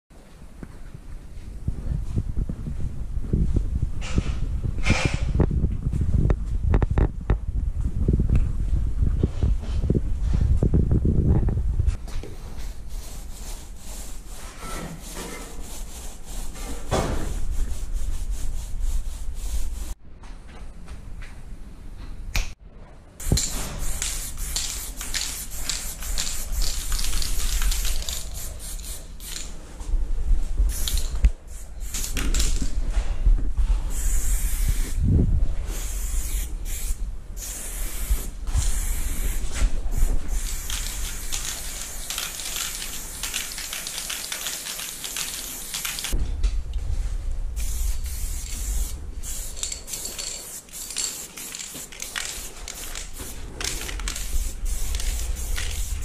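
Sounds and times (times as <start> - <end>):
spray paint can hissing: 23.2 - 29.5, 30.7 - 32.6, 33.9 - 35.0, 35.7 - 46.2, 47.6 - 56.0.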